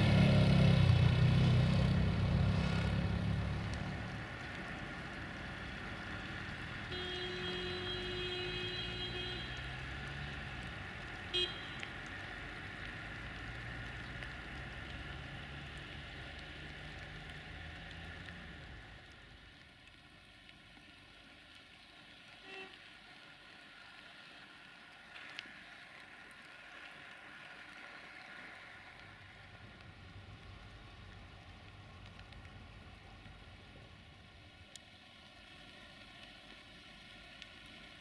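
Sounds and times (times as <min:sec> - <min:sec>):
railcar horn toot: 0:06.9 - 0:09.6, 0:22.4 - 0:22.7.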